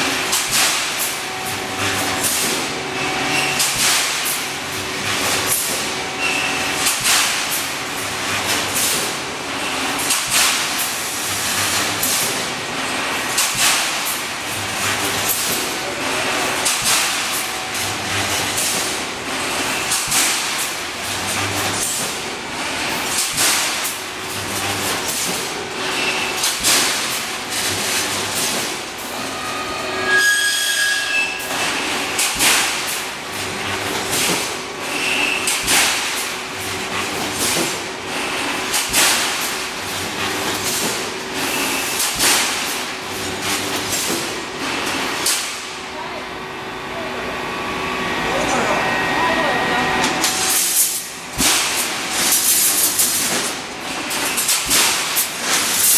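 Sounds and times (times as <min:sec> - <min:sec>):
welding machine metallic clanks: 0:00.0 - 0:29.4, 0:30.1 - 0:45.8, 0:50.0 - 0:55.9
brief squealing tone: 0:29.2 - 0:31.5.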